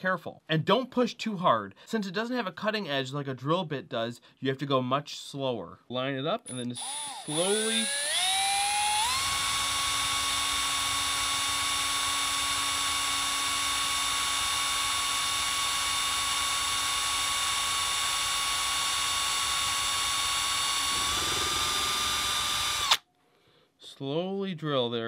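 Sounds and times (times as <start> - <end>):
small electric drill whining: 6.5 - 23.1.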